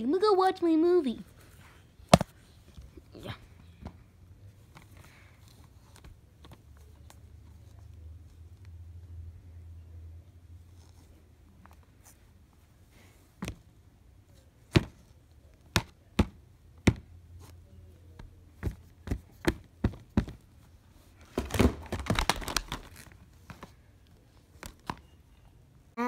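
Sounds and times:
rustling and crinkling: 0:01.1 - 0:09.0, 0:10.5 - 0:16.4, 0:17.3 - 0:25.2
plastic cases clicking and knocking: 0:21.2 - 0:23.7.

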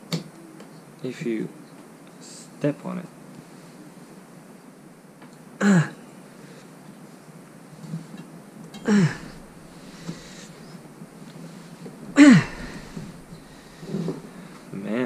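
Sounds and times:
man grunting with effort: 0:05.6 - 0:06.0, 0:08.9 - 0:09.7, 0:12.2 - 0:13.3.

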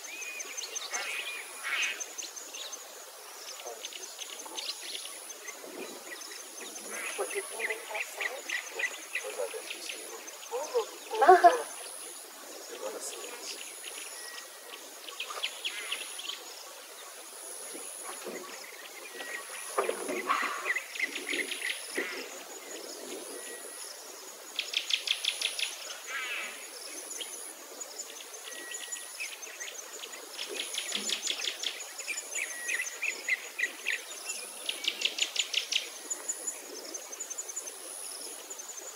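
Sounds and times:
insects trilling: 0:00.0 - 0:38.9
birds chirping: 0:03.4 - 0:17.2.

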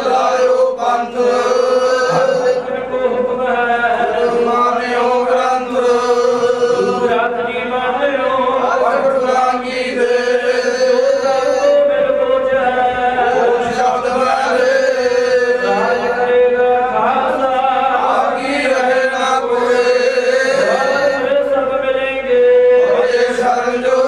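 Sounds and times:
men chanting prayer: 0:00.0 - 0:24.0.

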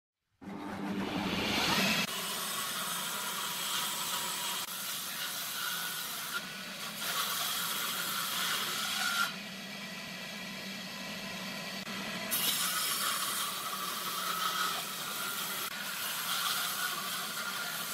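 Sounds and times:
table saw cutting wood: 0:00.4 - 0:17.9.

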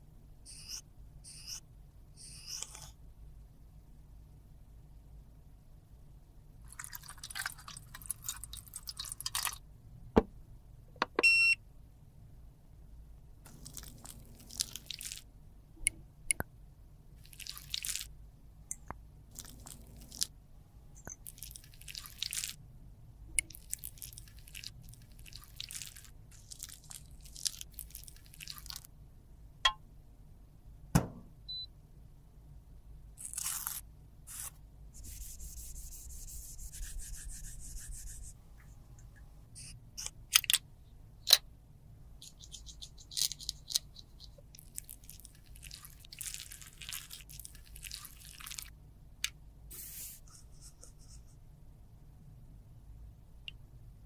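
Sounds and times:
tissue rubbing inside tube: 0:33.2 - 0:38.4.

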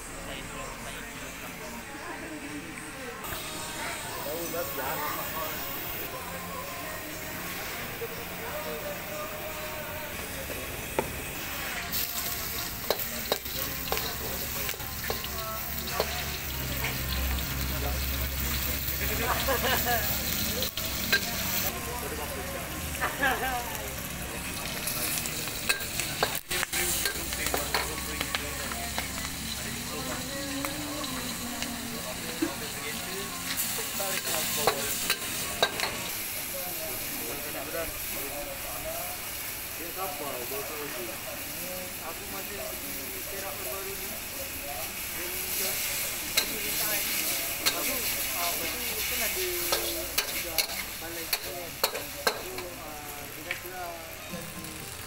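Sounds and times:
oil sizzling in a wok: 0:03.2 - 0:55.0
gas burner rumble: 0:10.2 - 0:40.8
metal utensils scraping a wok: 0:11.2 - 0:21.7, 0:24.6 - 0:29.9, 0:33.5 - 0:36.1, 0:45.6 - 0:52.7
spatula clanking against wok: 0:34.2 - 0:36.1, 0:49.6 - 0:52.6.

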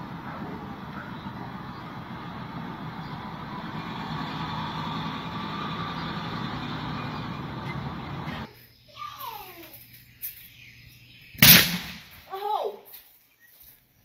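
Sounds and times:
vehicle engine running: 0:00.0 - 0:08.5.

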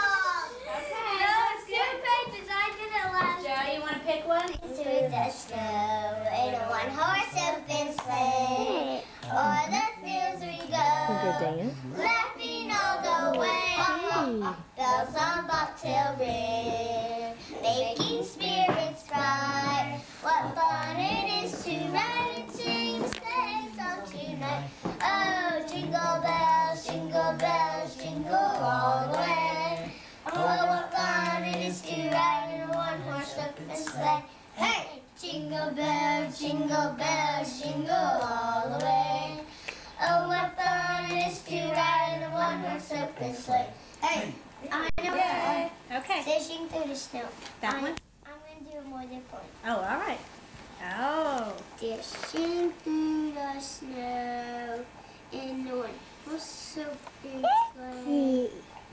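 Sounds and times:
girls singing together: 0:04.4 - 0:45.9.

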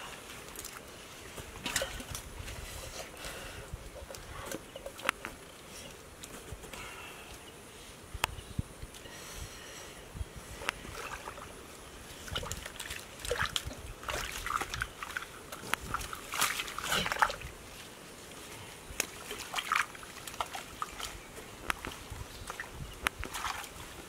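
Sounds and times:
hands squelching in muddy water: 0:12.2 - 0:17.9, 0:18.9 - 0:22.7, 0:23.3 - 0:24.0.

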